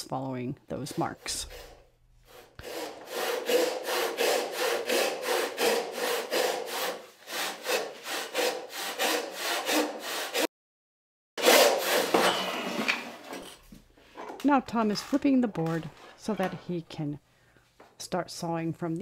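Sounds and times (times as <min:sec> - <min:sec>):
hand saw sawing strokes: 0:00.7 - 0:10.5, 0:11.4 - 0:13.4.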